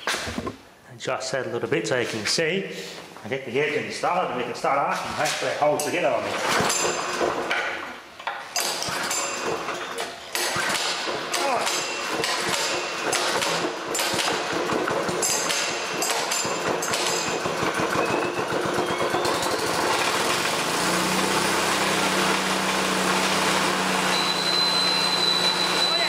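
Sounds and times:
small engine running: 17.5 - 26.0.

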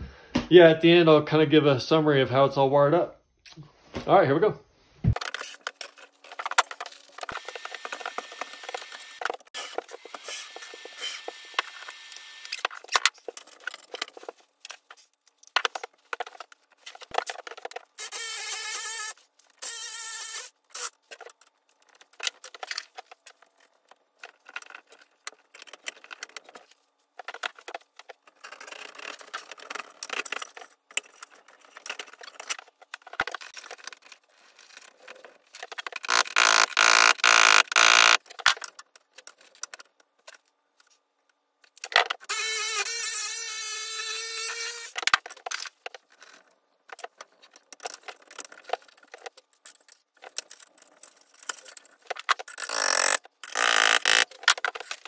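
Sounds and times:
cordless drill motor running: 36.1 - 38.2.

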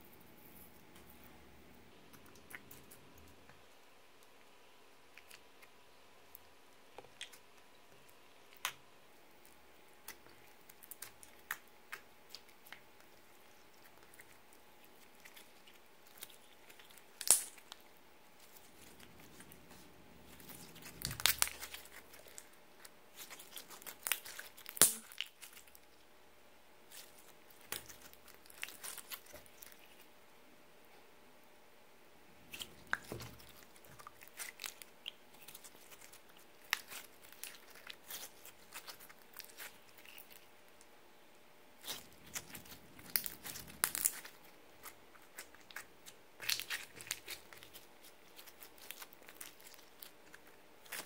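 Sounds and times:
slime snapping: 23.2 - 25.6.

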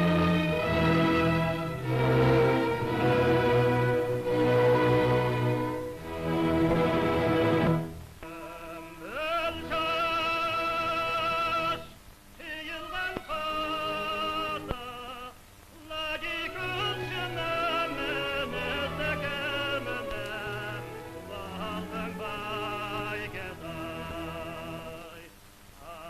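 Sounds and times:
soprano singing opera: 0.0 - 6.9, 7.6 - 26.0
orchestral accompaniment: 0.0 - 8.0, 16.4 - 25.0.

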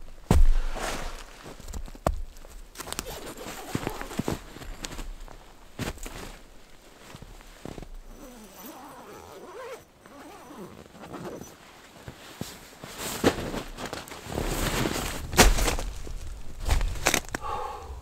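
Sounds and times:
crunching steps in snow: 0.1 - 8.4, 10.2 - 17.5
scuffs: 0.3 - 8.3
tent fabric rustling and scraping: 0.4 - 1.8, 2.4 - 17.4.

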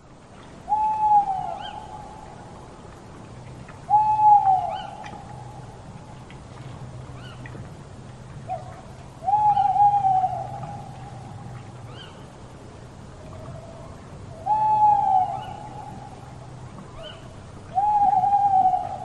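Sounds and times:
owl hooting: 0.7 - 2.1, 3.9 - 5.5, 9.2 - 11.3, 14.4 - 16.0, 17.8 - 19.0.

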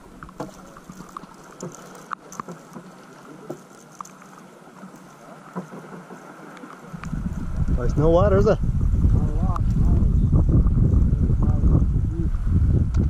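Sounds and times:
water lapping and dripping: 0.0 - 8.1.

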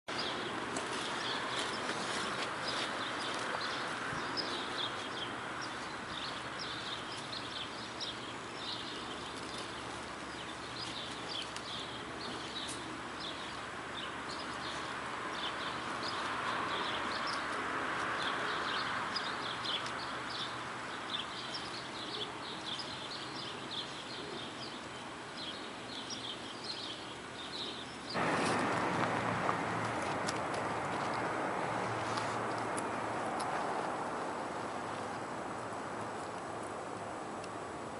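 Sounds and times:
small songbirds chirping: 0.1 - 28.6
steady outdoor hiss: 0.1 - 37.9.

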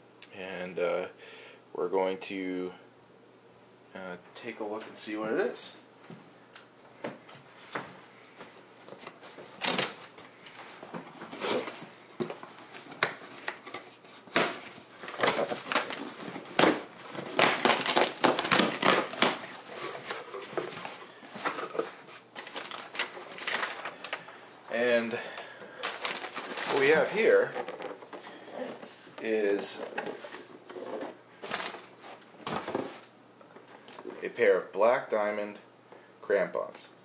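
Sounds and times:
packing paper crackling: 8.8 - 33.1
cardboard box tape ripping: 13.0 - 20.4.

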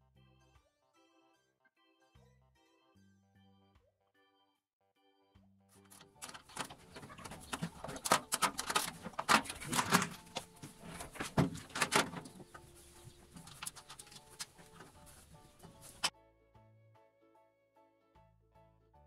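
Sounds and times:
bolts clattering on metal tray: 6.2 - 12.5.

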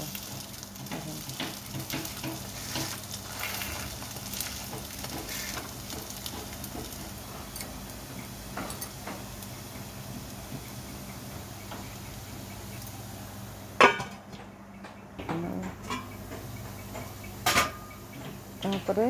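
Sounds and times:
pancake sizzling in oil: 0.0 - 14.0
metal spatula scraping pan: 2.1 - 4.5.

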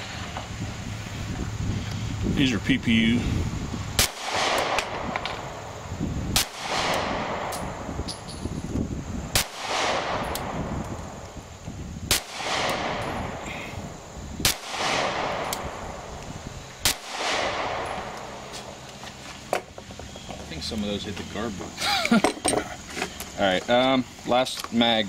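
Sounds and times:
pistol shots with echo: 4.0 - 5.4, 6.3 - 7.9, 9.3 - 10.8, 12.1 - 13.4, 14.4 - 16.0, 16.8 - 18.4.

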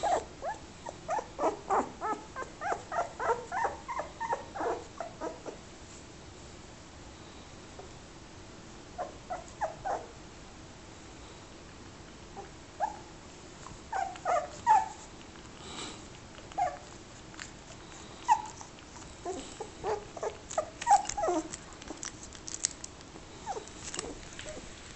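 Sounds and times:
puppy whimpering: 0.0 - 5.6, 9.0 - 10.1, 12.4 - 13.1, 13.9 - 15.1, 16.4 - 17.0, 17.7 - 22.1, 23.4 - 24.7.

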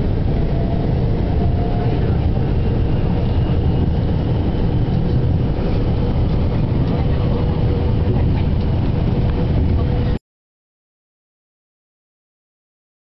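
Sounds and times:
city traffic rumble: 0.0 - 10.2.

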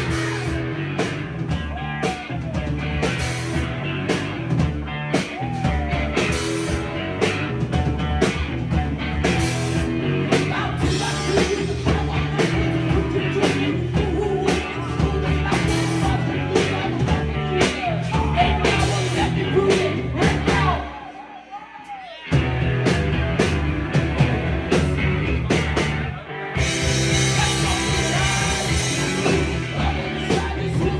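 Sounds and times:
person singing: 0.0 - 4.2, 5.1 - 7.5, 9.1 - 22.4, 26.1 - 30.9
drum kit: 0.0 - 21.0, 21.8 - 30.9
distorted electric guitars: 0.0 - 21.2, 21.9 - 30.9.

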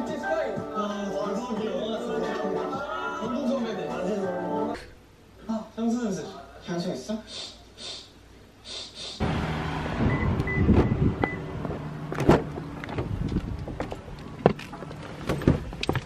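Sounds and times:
car chime beeps: 10.0 - 11.5
car door and seat clicks: 10.4 - 16.0.

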